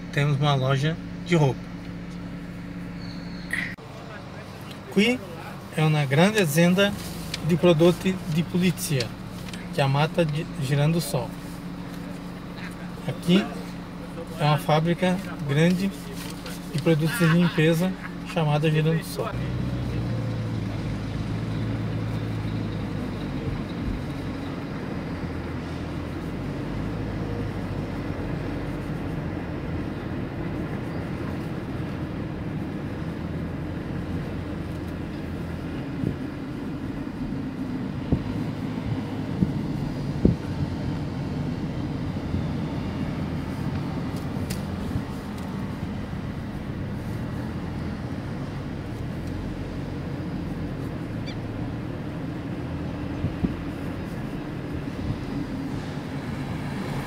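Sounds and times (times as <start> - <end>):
car road and engine noise: 0.0 - 57.0.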